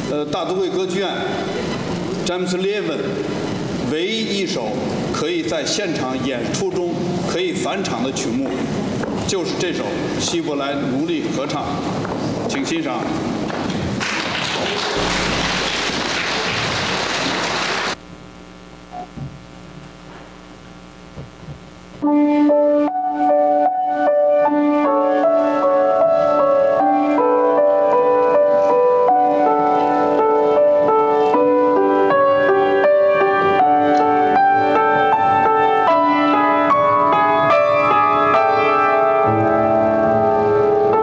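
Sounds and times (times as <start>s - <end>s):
grand piano playing: 22.0s - 41.0s.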